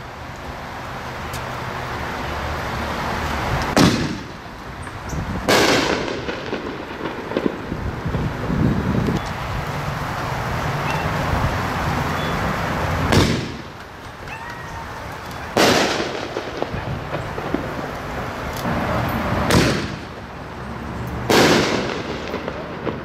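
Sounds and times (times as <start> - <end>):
fireworks fizzing and crackling: 0.0 - 23.0
firework shells banging: 5.0 - 7.8, 13.0 - 20.2, 21.2 - 23.0.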